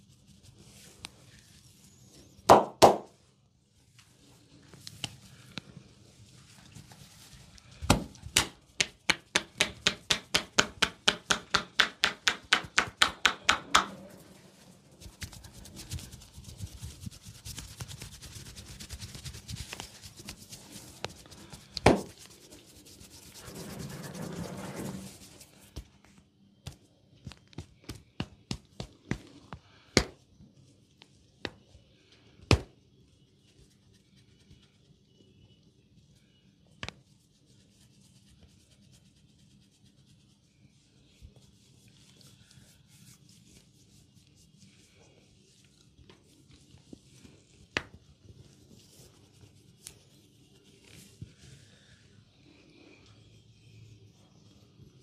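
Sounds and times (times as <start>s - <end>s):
hands rubbing hair: 12.3s - 25.8s.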